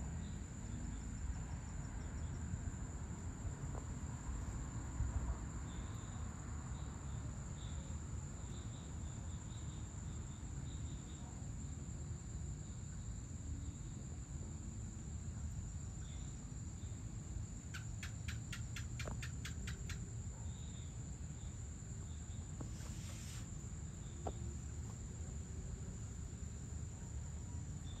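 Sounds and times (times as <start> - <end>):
crickets trilling: 0.0 - 28.0
quick run of ticks: 17.7 - 20.0
brief hiss: 22.6 - 23.6.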